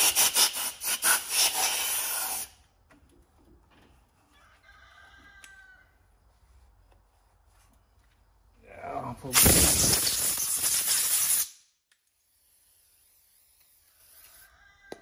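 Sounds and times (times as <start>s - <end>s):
compressed-air blow gun hissing: 9.3s - 11.6s.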